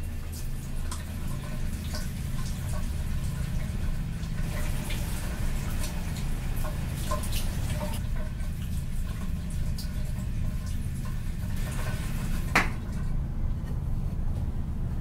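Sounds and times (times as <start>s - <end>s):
drips: 0.0s - 13.2s
steady low hum: 0.0s - 15.0s
tap running: 10.7s - 14.5s.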